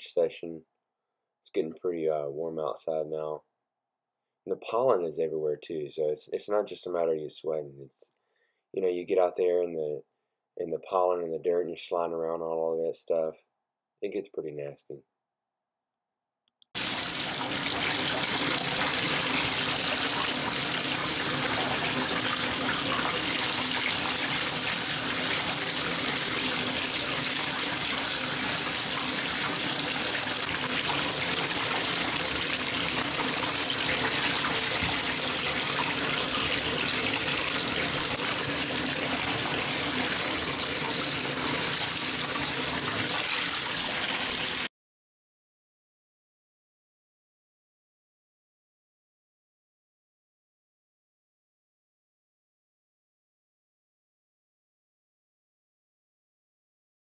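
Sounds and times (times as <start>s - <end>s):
faucet running into bathtub: 16.8s - 44.7s.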